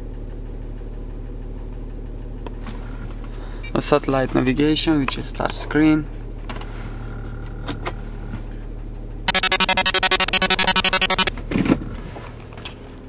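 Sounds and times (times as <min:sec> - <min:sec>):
rapid electronic beeping: 0:09.3 - 0:11.3.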